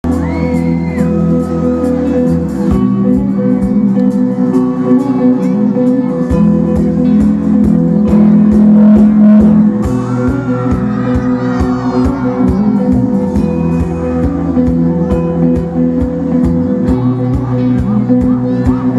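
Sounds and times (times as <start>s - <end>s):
electric and acoustic guitars: 0.0s - 18.9s
keyboard chords: 0.0s - 18.9s
steady drum beat: 5.9s - 18.9s.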